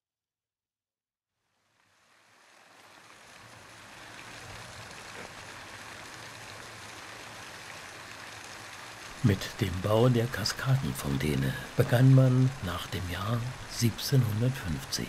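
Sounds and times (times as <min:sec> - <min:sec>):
fountain water splashing: 0:01.4 - 0:15.0.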